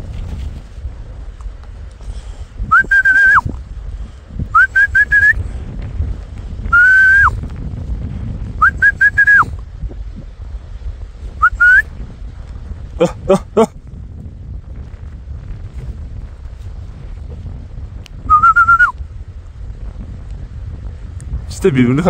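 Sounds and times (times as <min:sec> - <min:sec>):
wind rumble on microphone: 0:00.0 - 0:22.0
person whistling: 0:02.7 - 0:03.5, 0:04.5 - 0:05.4, 0:06.7 - 0:07.3, 0:08.6 - 0:09.5, 0:11.4 - 0:11.9, 0:18.3 - 0:19.0.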